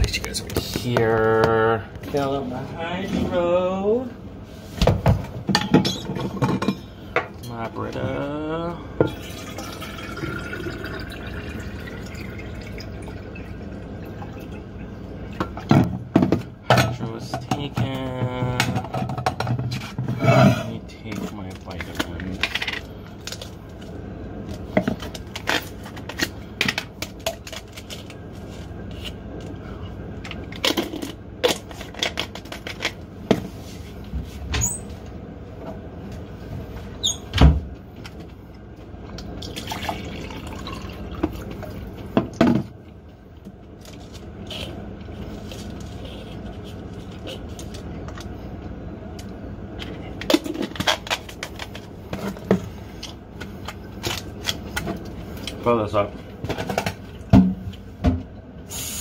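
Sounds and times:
water filling container: 9.1s - 14.9s, 39.4s - 42.1s.

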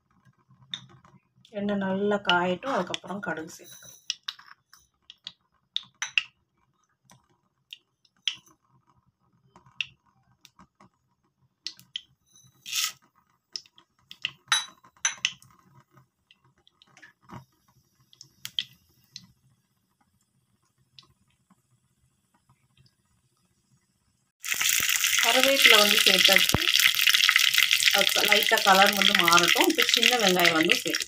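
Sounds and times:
hot oil crackling and popping: 0.0s - 23.7s, 24.4s - 31.0s
mustard seeds sputtering in oil: 24.4s - 31.0s.

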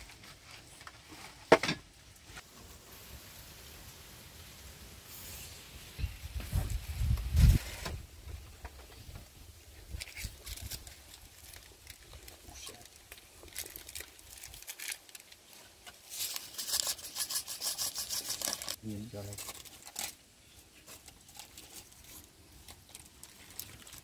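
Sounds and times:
plastic sachet tearing: 9.9s - 20.2s, 20.9s - 24.0s.

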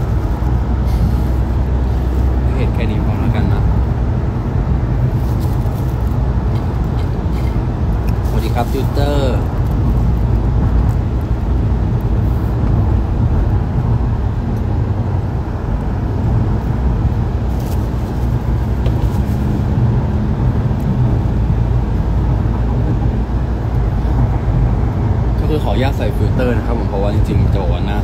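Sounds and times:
engine and road noise in car: 0.0s - 28.0s.

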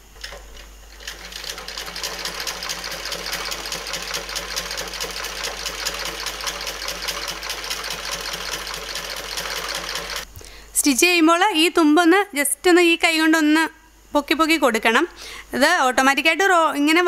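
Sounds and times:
sewing machine stitching: 0.2s - 10.2s.

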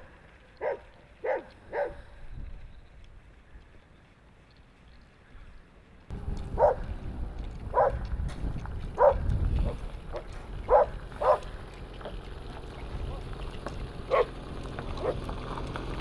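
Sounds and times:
low wind rumble: 0.0s - 16.0s
dog barking: 0.6s - 2.0s, 6.6s - 6.9s, 7.7s - 8.0s, 9.0s - 9.2s, 10.1s - 11.5s, 14.1s - 14.4s, 15.0s - 15.2s.

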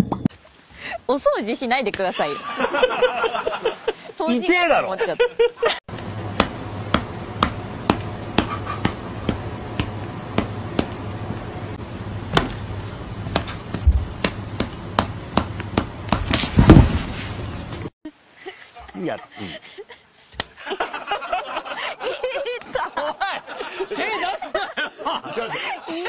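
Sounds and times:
sharp taps: 5.9s - 11.4s, 13.2s - 16.8s
noisy burst: 5.9s - 17.9s
steady low hum: 5.9s - 17.9s.

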